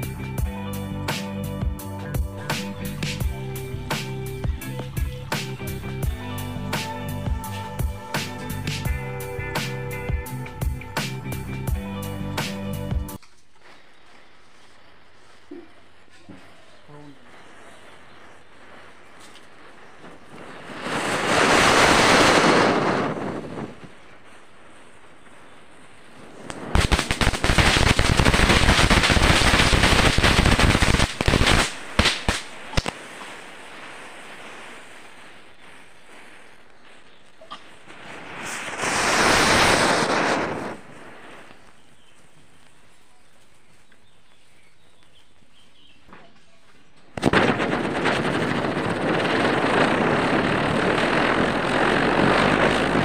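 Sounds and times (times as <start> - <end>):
firecrackers crackling: 0.0 - 53.0
firecracker pops: 2.2 - 14.6, 17.4 - 24.5, 26.2 - 53.0.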